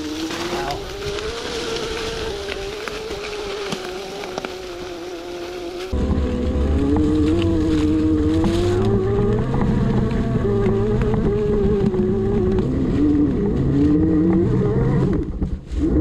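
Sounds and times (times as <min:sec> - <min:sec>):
electric motorcycle motor whining: 0:00.0 - 0:16.0
heavy low rumble: 0:05.8 - 0:16.0.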